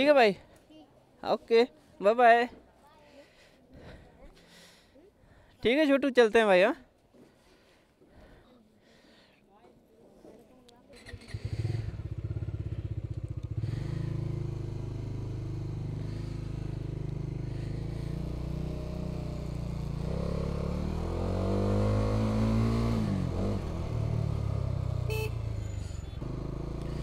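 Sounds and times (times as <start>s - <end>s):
motorcycle engine idling and revving: 10.9s - 27.0s.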